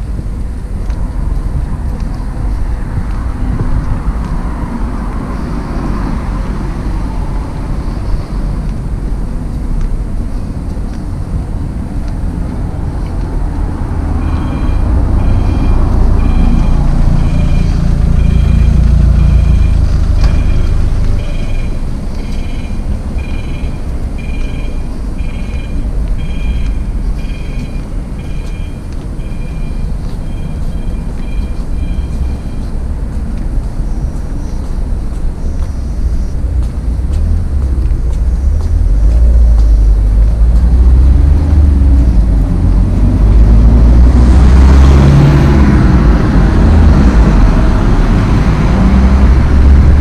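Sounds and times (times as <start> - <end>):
heavy vehicle passing loudly: 0.0 - 50.0
road traffic passing: 0.0 - 50.0
crossing signal double beeps: 14.1 - 32.9.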